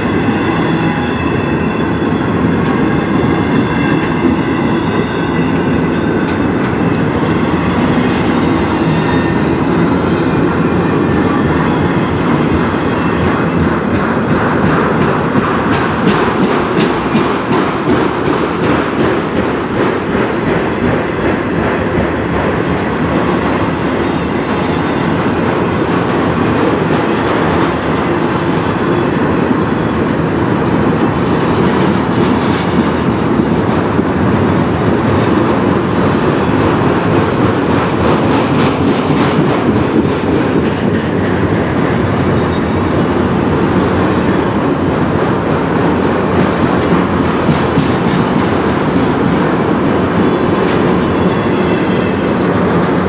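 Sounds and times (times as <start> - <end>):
steel wheels rumbling on rail: 0.0 - 53.0
train wheel clicks: 11.9 - 28.0, 30.6 - 41.6.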